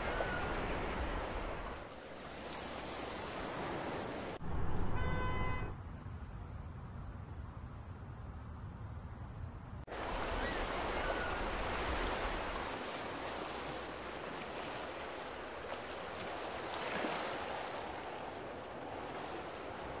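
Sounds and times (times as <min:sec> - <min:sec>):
ocean waves and surf: 0:00.0 - 0:05.7, 0:09.9 - 0:20.0.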